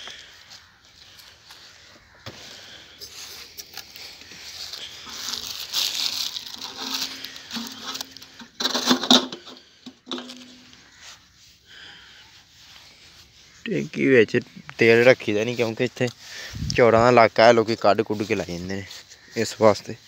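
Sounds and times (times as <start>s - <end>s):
rag rustling and crumpling: 3.1s - 11.1s.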